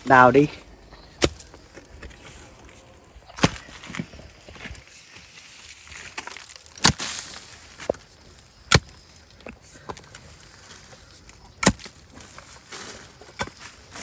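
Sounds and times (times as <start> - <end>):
hoe striking earth: 1.1 - 2.2, 3.3 - 4.7, 5.9 - 8.1, 8.7 - 9.6, 11.4 - 14.0.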